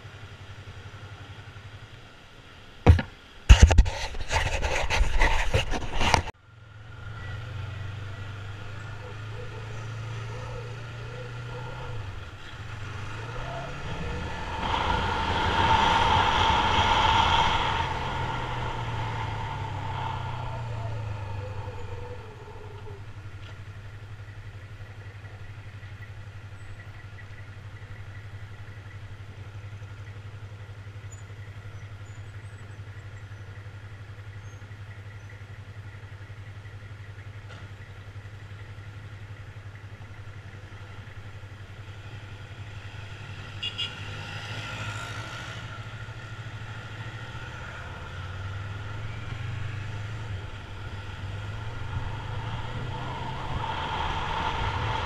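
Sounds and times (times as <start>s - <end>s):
motorcycle engine running: 18.1s - 43.9s.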